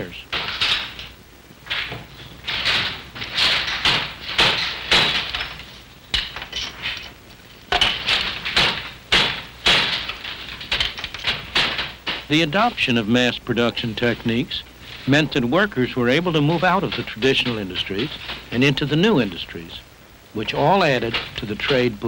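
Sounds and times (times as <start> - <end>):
handloom clacking: 1.7 - 7.1, 7.7 - 13.1, 15.1 - 19.8, 20.4 - 22.0.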